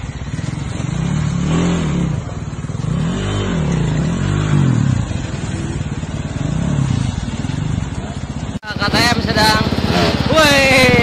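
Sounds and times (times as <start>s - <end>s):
dirt bike engine revving: 0.0s - 11.0s.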